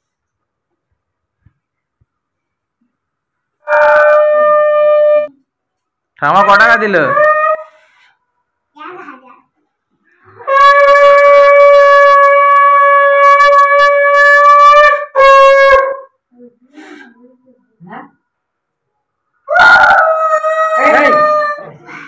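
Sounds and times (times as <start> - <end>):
conch shell blasts: 3.6 - 5.3, 10.4 - 16.2.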